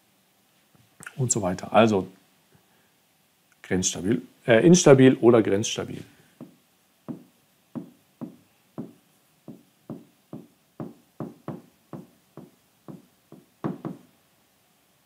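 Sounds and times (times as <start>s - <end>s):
pen tapping on screen: 6.4s - 14.0s.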